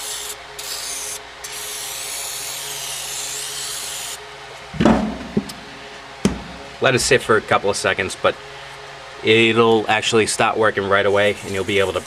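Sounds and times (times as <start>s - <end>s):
heavy metal part clunking down: 4.8s - 5.6s
aerosol spray hissing: 11.3s - 12.0s.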